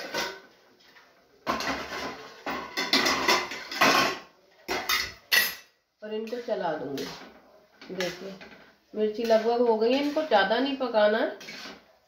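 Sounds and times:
spatula scraping steel pan: 0:06.1 - 0:12.0.

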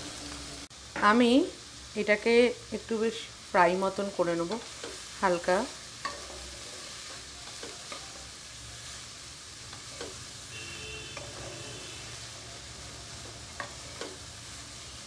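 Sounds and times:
vegetables sizzling in oil: 0:00.0 - 0:15.0
spatula scraping pan: 0:06.0 - 0:08.3, 0:09.7 - 0:10.3, 0:11.0 - 0:14.3.

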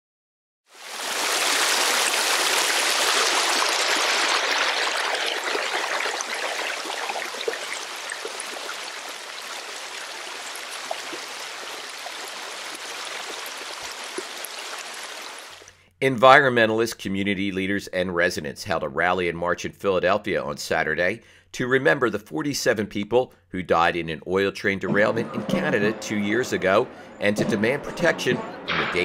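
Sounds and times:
stream rushing over rocks: 0:00.7 - 0:15.7.

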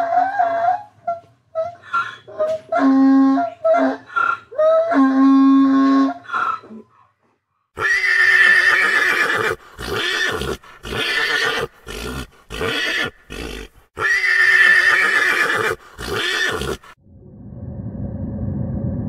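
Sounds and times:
horse whinnying: 0:07.8 - 0:17.0.

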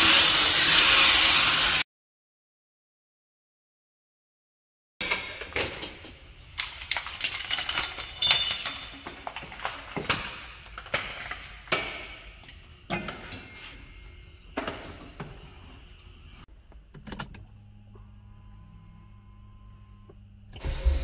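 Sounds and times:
keys jangling: 0:06.6 - 0:10.7.

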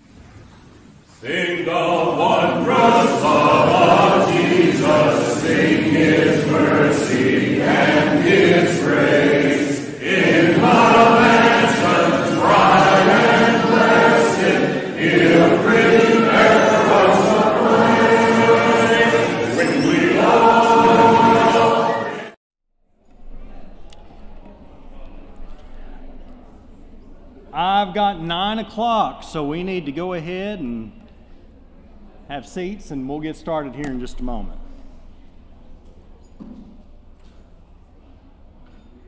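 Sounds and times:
mixed choir singing a hymn: 0:01.2 - 0:22.4.

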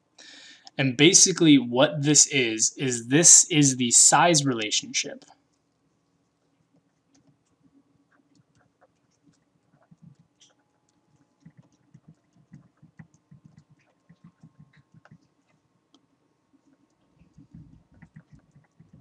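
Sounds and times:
stylus tapping on pen tablet: 0:11.4 - 0:15.2.

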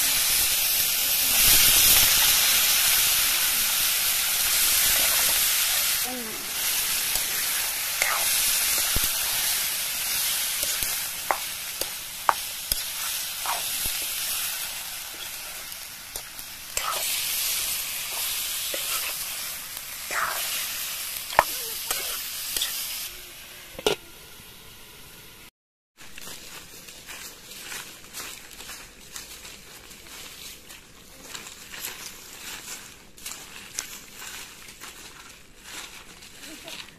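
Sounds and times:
chicken sizzling in oil: 0:00.0 - 0:25.4.

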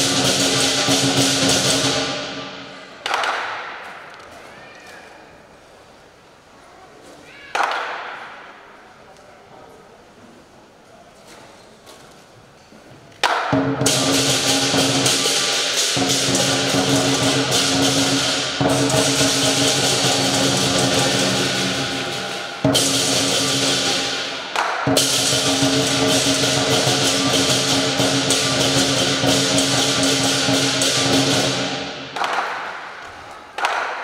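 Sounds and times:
big drum beat: 0:00.0 - 0:02.6, 0:13.5 - 0:32.2
cymbals crashing: 0:00.0 - 0:03.0, 0:13.5 - 0:33.0.

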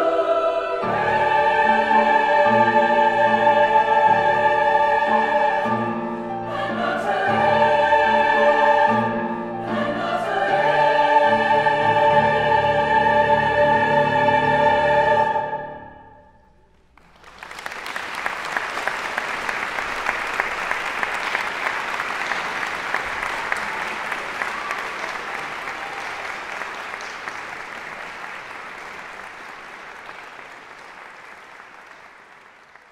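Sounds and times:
choir final chord: 0:00.0 - 0:16.4
audience applause: 0:16.9 - 0:32.9.

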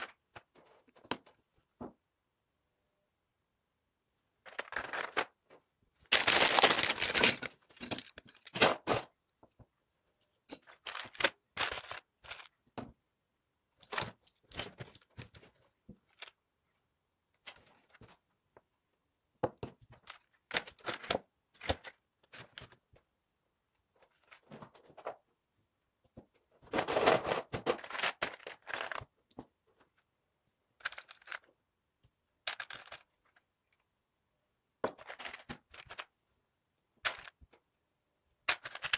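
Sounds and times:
plastic toy bricks clicking and rattling: 0:06.1 - 0:08.9, 0:30.8 - 0:31.5, 0:32.4 - 0:33.4, 0:38.4 - 0:38.9.

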